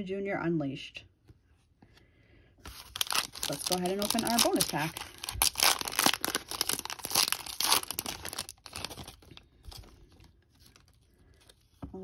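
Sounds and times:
foil wrapper crinkling: 2.6s - 11.7s.

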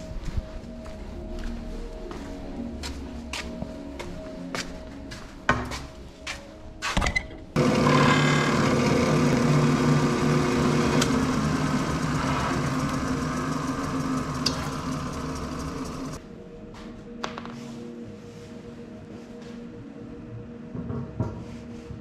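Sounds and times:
drill press boring into wood: 7.6s - 16.2s.

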